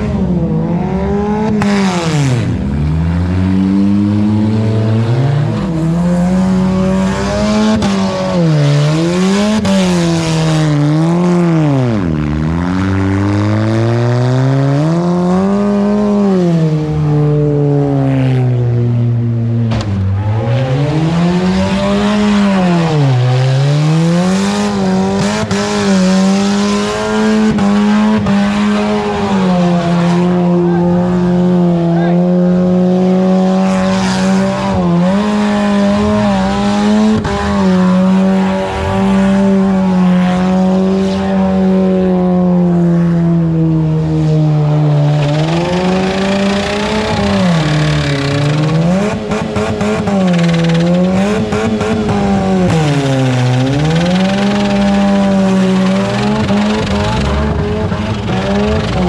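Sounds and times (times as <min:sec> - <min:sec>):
car engine at high revs: 0:00.0 - 0:59.0
wheels spinning in dirt: 0:52.8 - 0:59.0.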